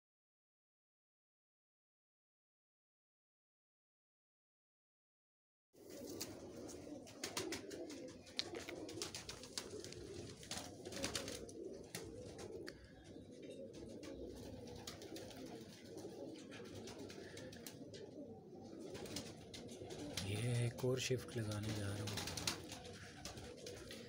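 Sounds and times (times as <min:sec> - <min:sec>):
pigeons cooing: 0:05.8 - 0:24.0.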